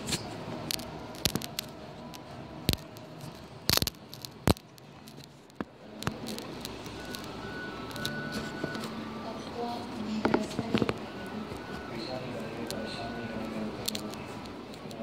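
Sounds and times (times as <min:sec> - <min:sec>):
sharp clicks and taps: 0:00.1 - 0:08.9.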